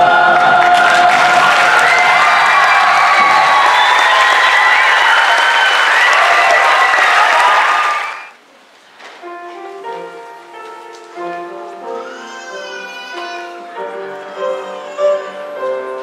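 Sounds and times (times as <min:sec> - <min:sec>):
audience applauding and cheering: 0:00.0 - 0:08.4.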